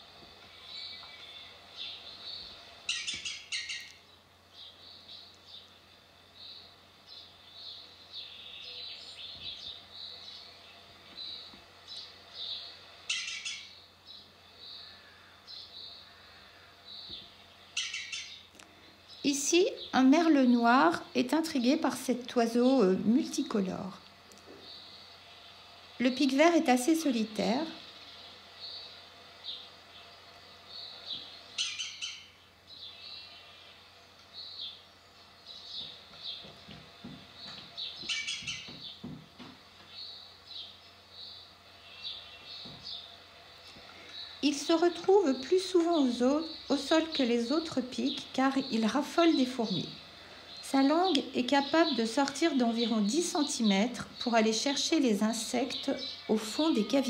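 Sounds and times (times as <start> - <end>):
bird chirps: 0.4 - 21.0, 28.0 - 39.1
bird chattering calls: 0.5 - 4.1, 11.2 - 20.0, 30.8 - 33.7, 37.4 - 39.0.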